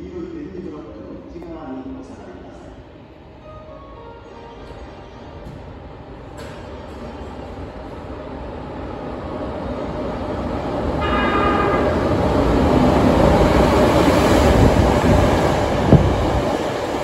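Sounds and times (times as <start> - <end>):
train horn tone: 11.0 - 12.2.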